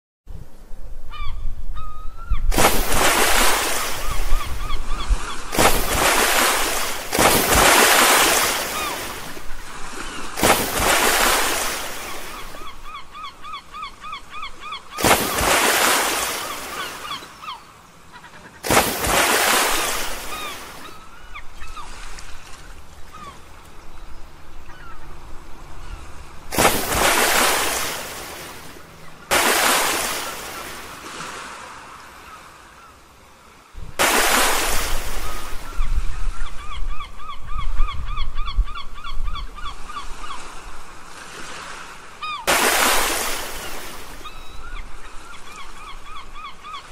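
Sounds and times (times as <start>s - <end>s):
birds calling: 1.1s - 46.9s
stones splashing into water: 2.5s - 4.2s, 5.5s - 9.4s, 10.2s - 12.5s, 15.0s - 16.7s, 18.6s - 20.5s, 26.5s - 28.4s, 29.3s - 30.7s, 34.0s - 35.3s, 42.5s - 43.9s.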